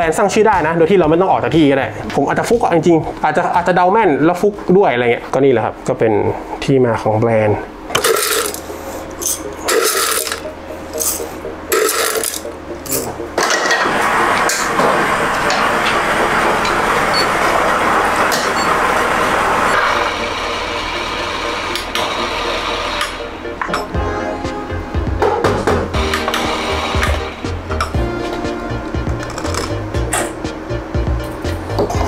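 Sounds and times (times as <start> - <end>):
coffee machine running: 7.9 - 24.0, 25.0 - 30.4.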